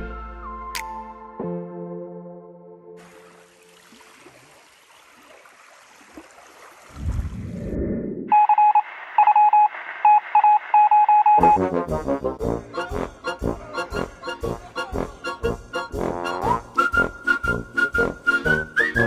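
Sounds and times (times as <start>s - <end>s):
music: 0.0s - 3.0s, 11.4s - 19.0s
electronic beeping: 8.3s - 11.6s.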